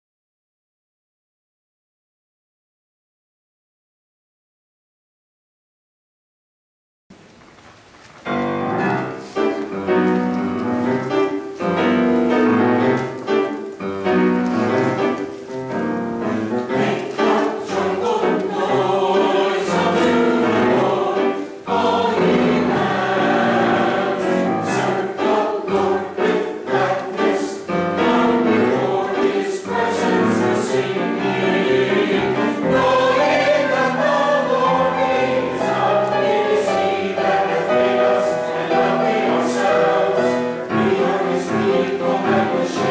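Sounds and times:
mixed choir singing: 0:10.8 - 0:42.9.

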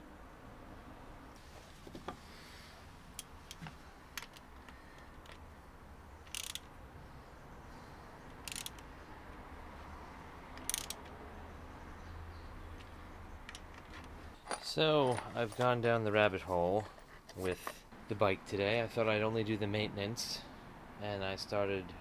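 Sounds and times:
socket ratchet clicking: 0:06.2 - 0:06.7, 0:08.3 - 0:08.9, 0:10.5 - 0:11.2.

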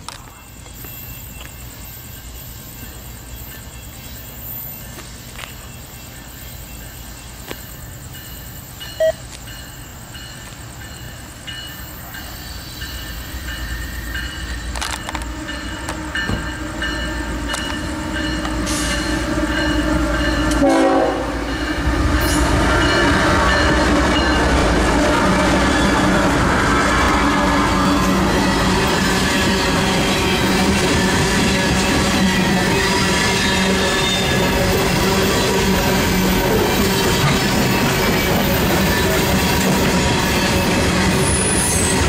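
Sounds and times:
train horn: 0:15.1 - 0:24.3.

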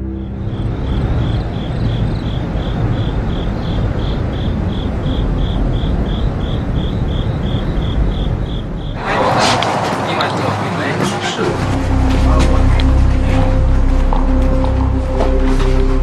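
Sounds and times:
insect chirping: 0:00.0 - 0:09.0
low rumbling background noise: 0:00.0 - 0:16.0.

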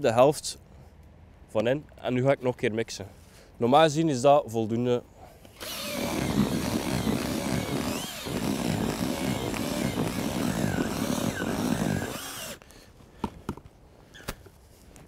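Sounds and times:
drill mixing in plastic bucket: 0:05.6 - 0:12.6.

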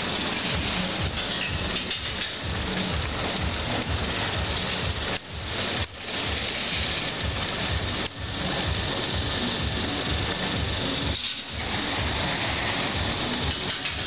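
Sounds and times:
amusement ride machinery rumble: 0:00.0 - 0:14.0.

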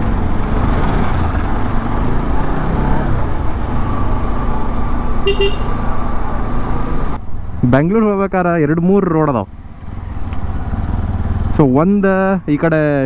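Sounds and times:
motorcycle rumbling: 0:00.0 - 0:13.0
high-pitched horn toot: 0:05.2 - 0:05.7.

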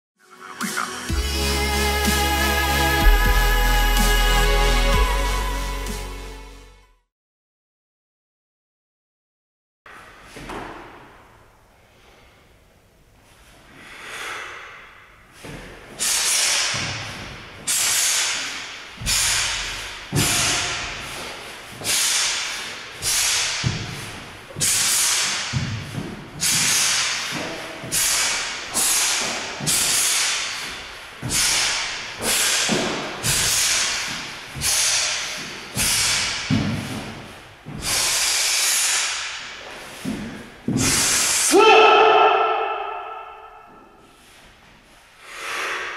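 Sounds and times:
forceful hissing exhalations: 0:13.8 - 0:15.0, 0:16.0 - 0:16.8, 0:17.7 - 0:24.0, 0:26.4 - 0:37.0, 0:37.7 - 0:40.1, 0:40.8 - 0:41.5, 0:45.2 - 0:45.9.

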